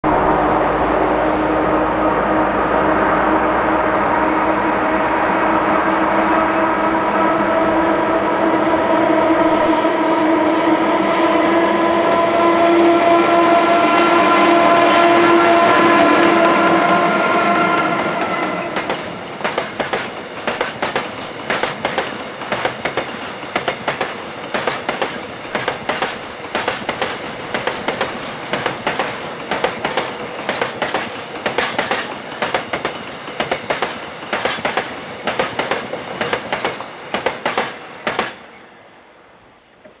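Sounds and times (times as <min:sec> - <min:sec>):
train horn: 0:00.0 - 0:19.4
train rumble: 0:00.0 - 0:40.0
train wheels clicking over rail joints: 0:18.2 - 0:38.6.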